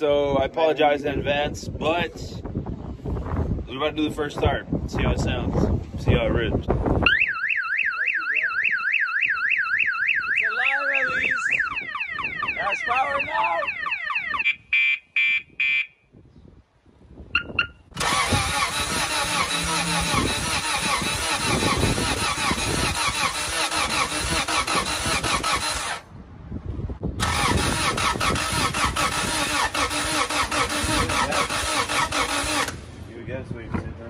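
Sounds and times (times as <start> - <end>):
car engine starting and running: 17.9 - 26.1, 27.1 - 33.2.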